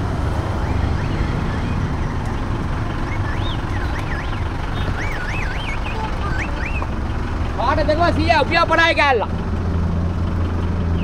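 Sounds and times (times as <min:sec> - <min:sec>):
street traffic: 0:00.0 - 0:11.0.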